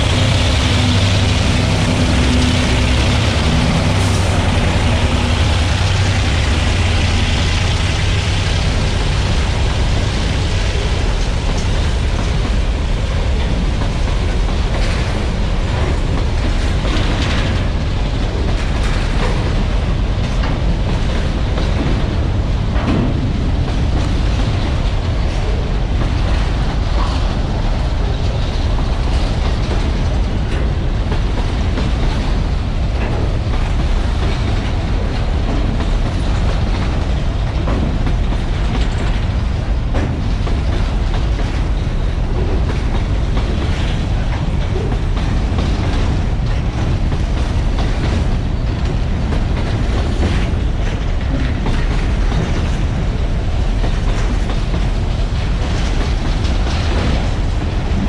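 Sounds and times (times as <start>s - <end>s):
clacks over rail joints: 0.0s - 58.0s
train wheels rumbling on rails: 0.0s - 58.0s.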